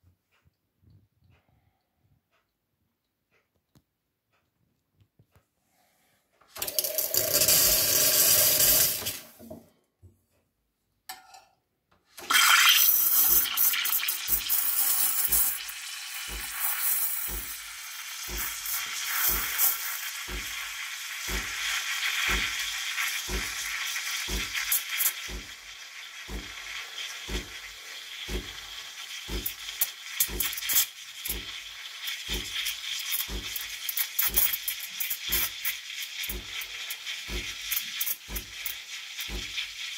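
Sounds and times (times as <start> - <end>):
steam wand blast into metal jug: 6.6 - 9.3, 12.2 - 39.7
steam wand hissing in milk: 6.6 - 9.3, 12.2 - 39.9.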